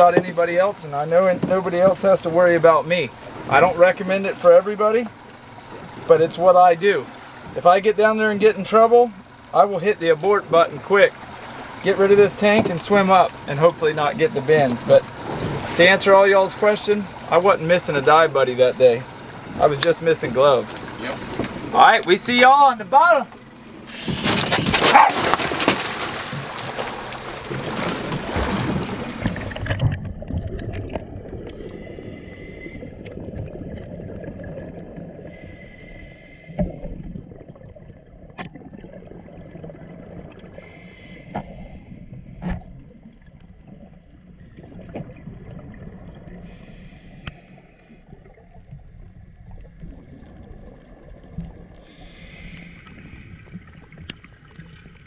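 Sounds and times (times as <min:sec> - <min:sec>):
splashing and bubbles: 0:08.4 - 0:22.1, 0:23.4 - 0:55.0
scuba regulator breathing: 0:23.8 - 0:24.3, 0:31.5 - 0:33.2, 0:35.2 - 0:36.8, 0:40.6 - 0:42.1, 0:46.4 - 0:48.1, 0:51.8 - 0:53.6
underwater bubbles: 0:26.0 - 0:55.0.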